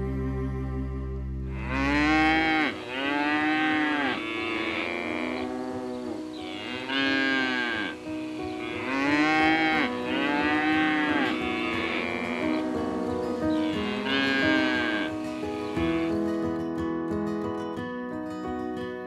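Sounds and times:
drawn-out animal calls: 1.5 - 16.2.

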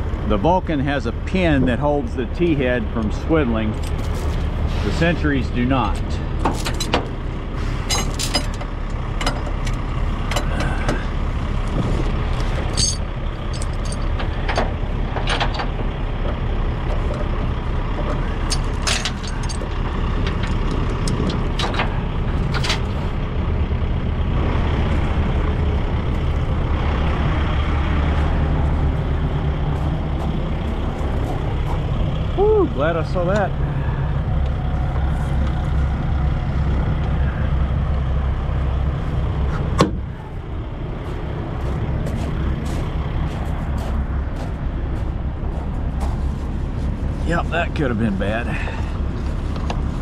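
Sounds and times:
diesel truck engine idling: 0.0 - 50.0
steel chain clinking: 7.9 - 8.6, 12.7 - 14.6, 18.4 - 20.6.

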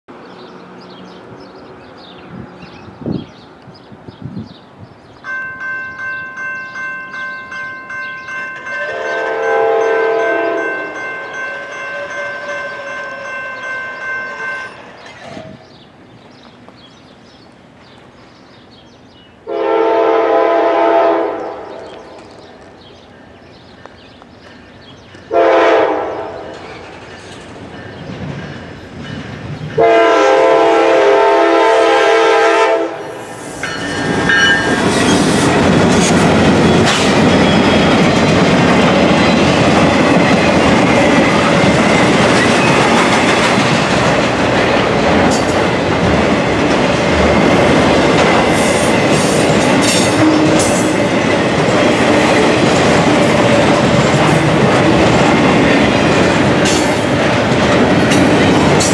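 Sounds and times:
crossing signal bell ringing: 5.2 - 15.1, 33.6 - 35.2
locomotive air horn blasts: 8.6 - 13.6, 19.5 - 21.8, 25.3 - 26.5, 29.8 - 33.2.

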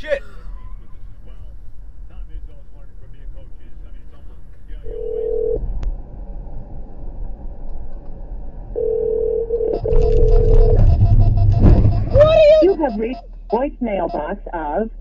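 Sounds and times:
low road rumble: 0.0 - 15.0
steady single-pitched tone: 8.7 - 14.4.

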